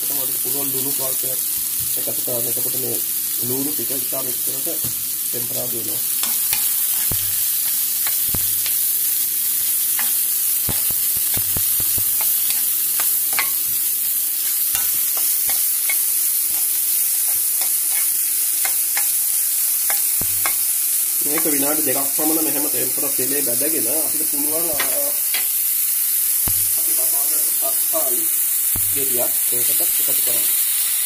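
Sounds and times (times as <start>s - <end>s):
onions sizzling in hot oil: 0.0s - 31.0s
spatula scraping a pan: 6.2s - 8.9s, 9.7s - 19.1s.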